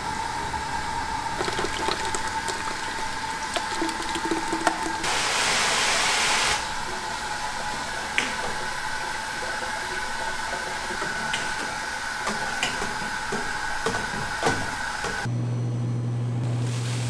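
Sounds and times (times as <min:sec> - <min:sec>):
machinery hissing whir: 0:00.0 - 0:15.3
low motor hum: 0:15.2 - 0:17.0.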